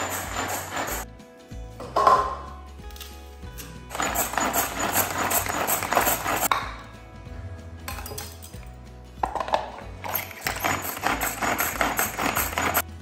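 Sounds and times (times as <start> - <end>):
background music: 0.0 - 13.0
pull-cord vegetable chopper rattling: 10.2 - 12.8.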